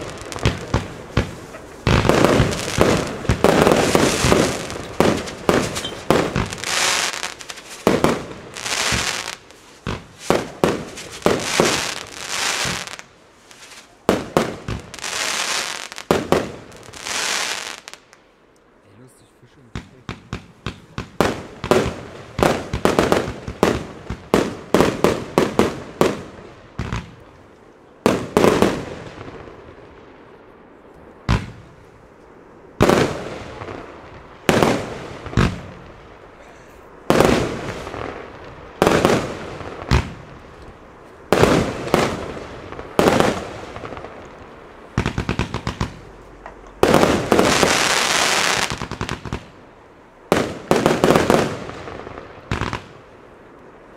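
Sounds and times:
firework shells bursting: 0:00.0 - 0:16.6
firework crackling: 0:00.0 - 0:18.3, 0:19.7 - 0:53.9
firework launch thumps: 0:00.4 - 0:06.6.

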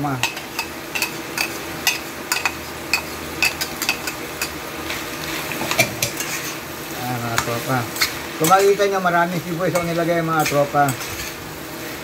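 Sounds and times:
food sizzling: 0:00.0 - 0:12.0
metal spatula scraping pan: 0:05.3 - 0:06.6, 0:08.0 - 0:09.0, 0:09.6 - 0:11.4.

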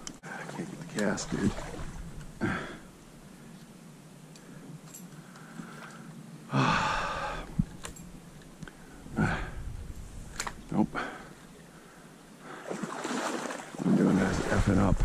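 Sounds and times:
man sighing: 0:02.4 - 0:02.9, 0:06.5 - 0:07.7, 0:09.0 - 0:09.8.

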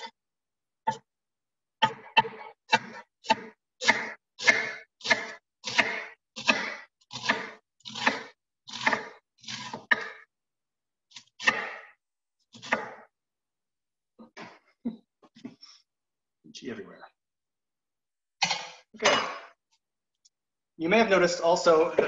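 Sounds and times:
knife chopping cabbage on board: 0:01.8 - 0:10.2, 0:11.2 - 0:11.9, 0:12.6 - 0:13.1.

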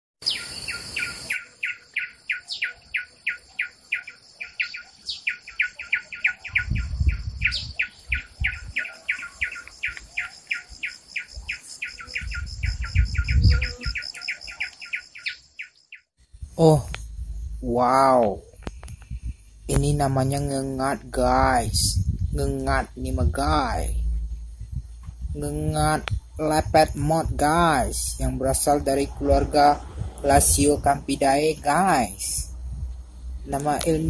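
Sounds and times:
low rumbles: 0:16.2 - 0:34.0.

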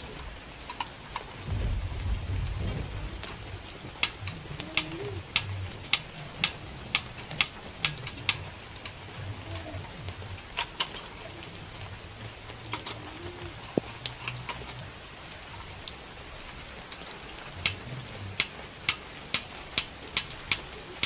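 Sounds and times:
rain on tent: 0:00.0 - 0:21.0.

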